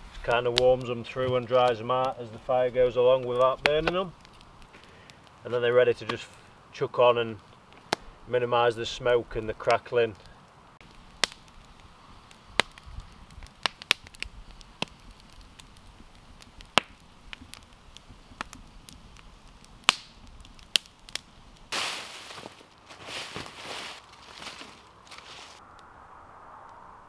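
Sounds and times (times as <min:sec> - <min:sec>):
fire pops: 0:00.0 - 0:06.6, 0:07.3 - 0:08.3, 0:09.4 - 0:25.9
campfire crackling: 0:00.0 - 0:27.0
loud rustling: 0:21.7 - 0:25.6.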